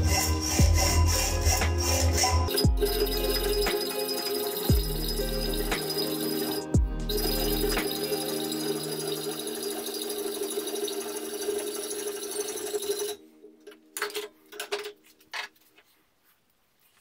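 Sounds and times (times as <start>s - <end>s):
hacksaw cutting steel: 0.0s - 13.2s.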